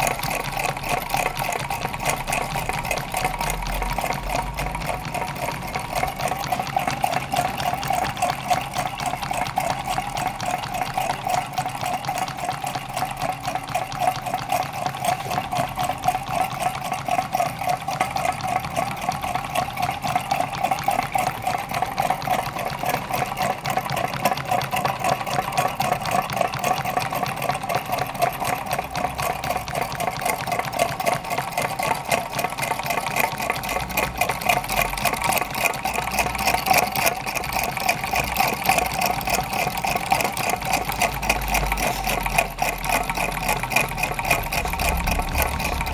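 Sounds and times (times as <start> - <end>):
stirling engines clattering: 29.7 - 45.9.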